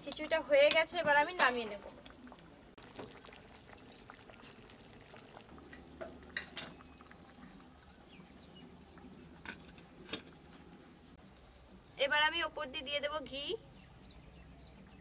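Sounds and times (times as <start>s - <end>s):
food bubbling in a pot: 0.0s - 12.0s.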